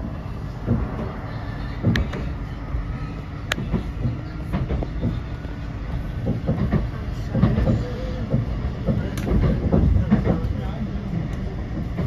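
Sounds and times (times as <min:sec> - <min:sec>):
tram rumbling along track: 0:00.0 - 0:12.0
wheels knocking on rails: 0:00.6 - 0:02.4, 0:03.5 - 0:10.7.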